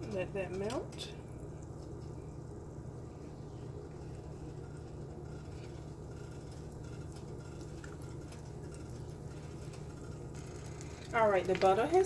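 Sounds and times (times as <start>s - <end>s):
steady low hum: 0.0s - 12.0s
butter sizzling in oil: 2.6s - 12.0s.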